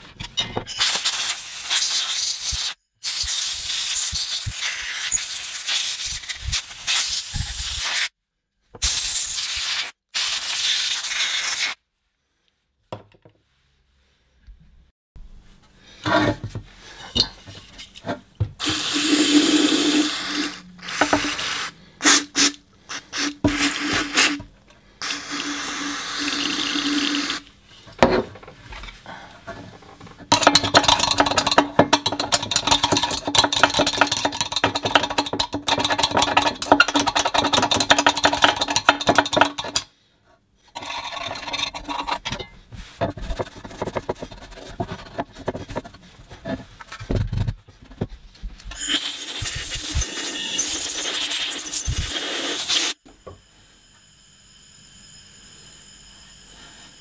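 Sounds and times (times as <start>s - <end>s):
spray hissing: 18.6s - 24.4s, 48.9s - 53.0s.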